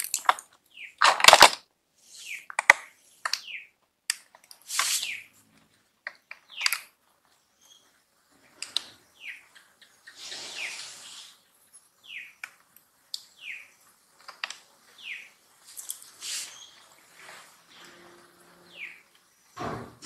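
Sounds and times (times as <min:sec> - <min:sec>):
sharp clicks: 0:02.5 - 0:04.9, 0:06.0 - 0:06.9
bird high falling call: 0:17.7 - 0:19.1.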